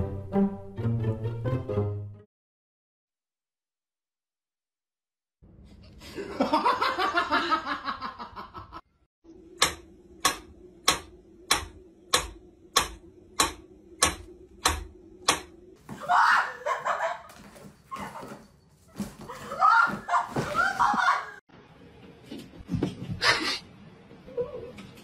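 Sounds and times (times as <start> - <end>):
person laughing: 6.0 - 8.8, 16.3 - 18.3.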